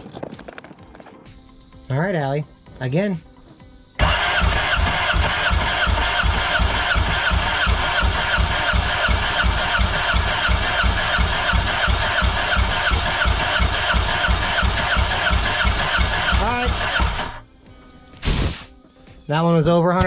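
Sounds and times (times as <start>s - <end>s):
starter cranking engine: 4.0s - 17.4s.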